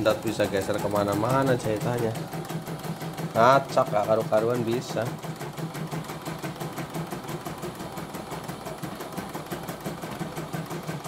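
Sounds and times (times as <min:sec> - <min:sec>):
embroidery machine stitching: 0:00.0 - 0:11.0.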